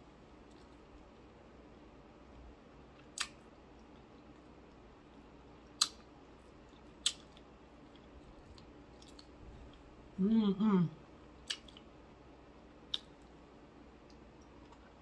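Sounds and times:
crisp clicks of chewing fried fish: 0:02.9 - 0:04.8, 0:05.6 - 0:09.8, 0:11.4 - 0:11.9, 0:12.9 - 0:13.4.

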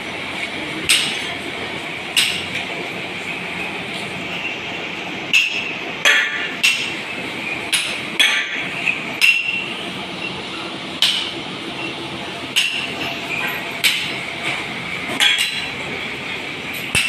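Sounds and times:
hammer striking metal: 0:05.3 - 0:06.9, 0:07.7 - 0:09.6.

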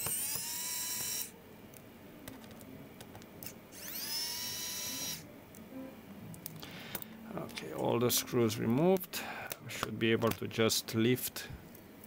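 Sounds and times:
electric screwdriver whirring: 0:00.0 - 0:01.3, 0:03.4 - 0:05.2.

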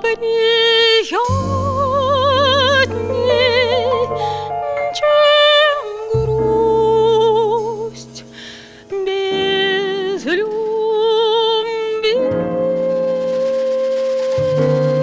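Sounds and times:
piano: 0:00.0 - 0:15.0
woman singing: 0:00.0 - 0:15.0
double bass: 0:01.2 - 0:10.5, 0:12.1 - 0:15.0.

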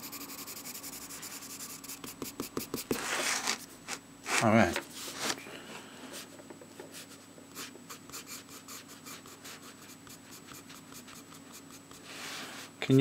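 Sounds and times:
pencil scratching on paper: 0:00.0 - 0:03.7, 0:07.0 - 0:12.1.

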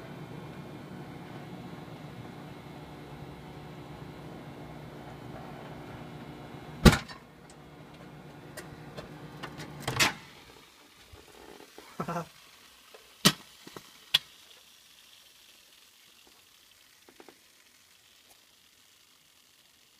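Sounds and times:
microwave oven humming: 0:00.0 - 0:10.7
egg bursting with loud bang: 0:06.8 - 0:07.2
small pops: 0:12.9 - 0:14.7.

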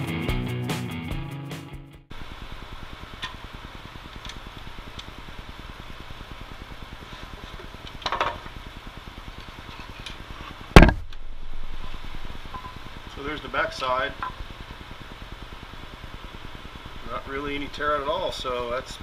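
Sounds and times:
sharp knock: 0:10.8 - 0:11.0.

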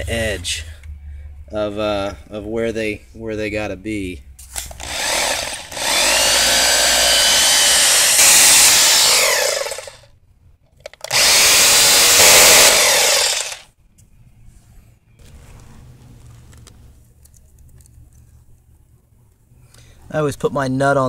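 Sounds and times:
power drill boring into concrete: 0:04.7 - 0:10.0, 0:11.0 - 0:13.7.

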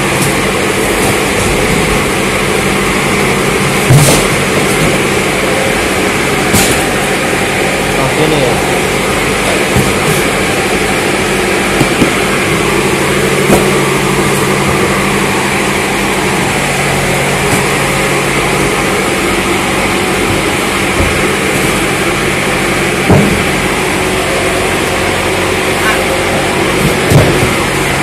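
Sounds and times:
machine drone: 0:00.0 - 0:28.0
cardboard cartons knocking: 0:03.7 - 0:05.7, 0:09.3 - 0:16.4, 0:17.1 - 0:23.8, 0:26.6 - 0:27.9.

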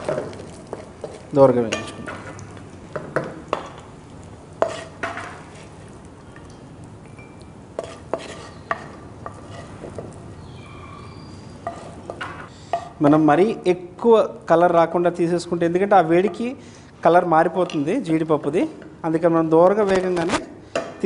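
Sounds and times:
metal spatula scraping a pan: 0:00.0 - 0:02.4, 0:04.6 - 0:05.7, 0:07.8 - 0:10.1, 0:11.5 - 0:13.0.

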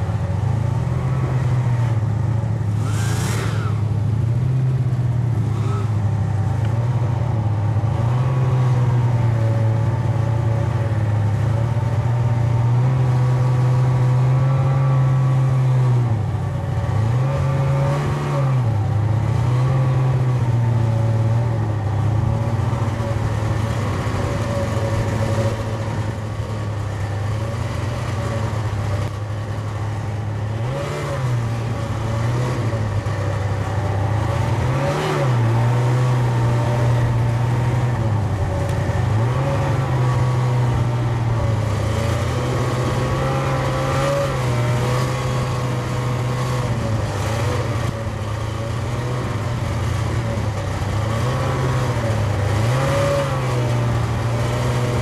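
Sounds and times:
snowmobile engine droning: 0:00.0 - 0:55.0
short hiss: 0:02.7 - 0:03.8.

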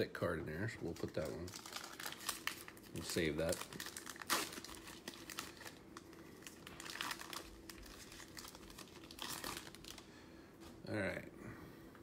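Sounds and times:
wrapper crinkling: 0:00.8 - 0:10.1.

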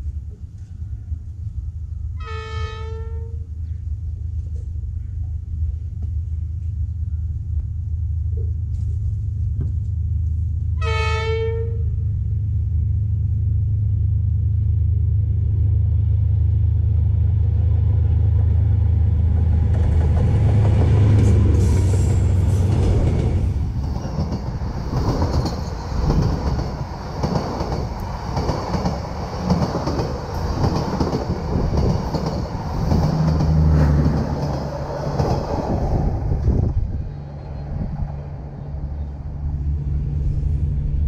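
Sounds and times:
train rumble: 0:00.0 - 0:41.0
locomotive horn blasts: 0:02.2 - 0:03.4, 0:10.8 - 0:11.9.

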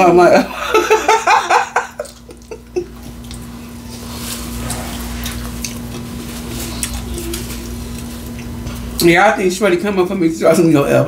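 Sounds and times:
steady low hum: 0:00.0 - 0:11.0
wet squishing eating: 0:01.9 - 0:09.1.

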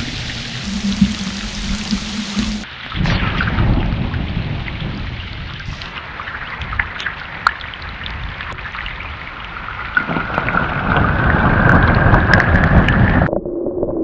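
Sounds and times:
low rumble: 0:00.0 - 0:07.0
rain falling on a pond: 0:00.0 - 0:13.3.

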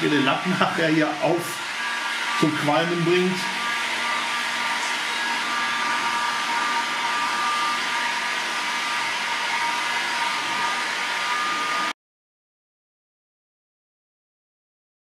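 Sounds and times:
heat gun blowing with high whine: 0:00.0 - 0:12.0.

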